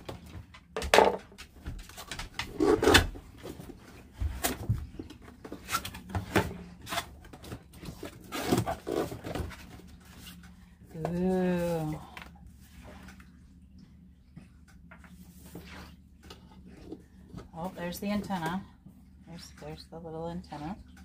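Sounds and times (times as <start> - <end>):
tape and cardboard flaps tearing: 1.9 - 3.2.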